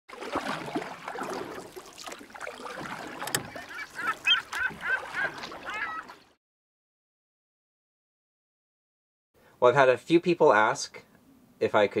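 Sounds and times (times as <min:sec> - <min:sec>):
water: 0:00.0 - 0:06.4
birds honking: 0:02.6 - 0:06.3.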